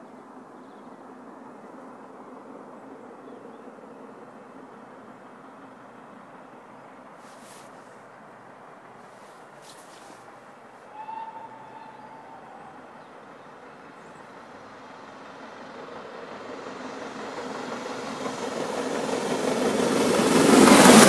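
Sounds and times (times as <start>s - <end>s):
steam locomotive rumble: 0.0s - 21.0s
steam whistle: 10.8s - 12.9s.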